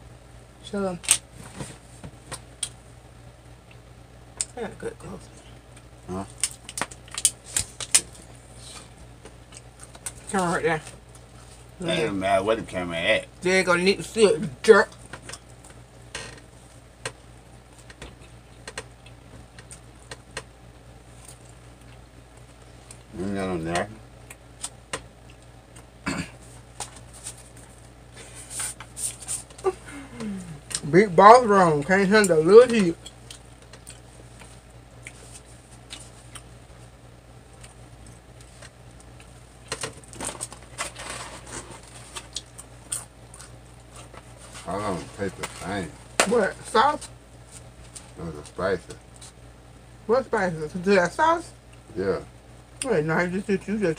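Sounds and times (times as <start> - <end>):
faint low hum: 0.0 - 53.9
chewing: 8.6 - 10.2, 21.1 - 23.1, 33.0 - 36.6, 42.0 - 44.4.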